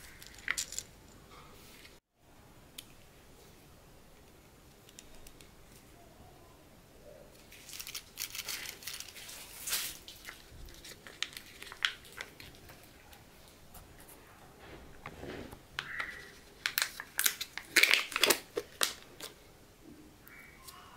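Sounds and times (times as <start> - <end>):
plastic packaging crinkling: 7.4 - 13.6, 15.8 - 19.4
lid tearing: 15.9 - 19.4.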